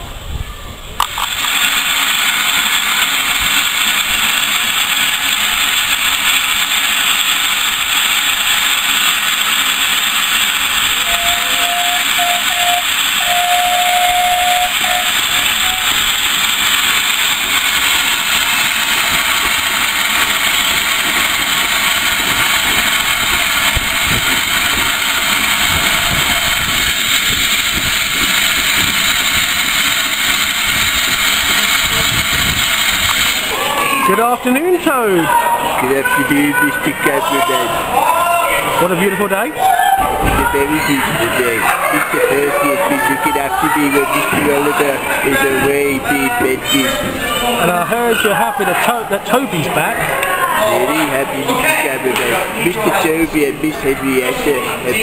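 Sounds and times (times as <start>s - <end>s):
steam hissing: 1.0s - 37.6s
faint steam whistle: 10.9s - 16.2s.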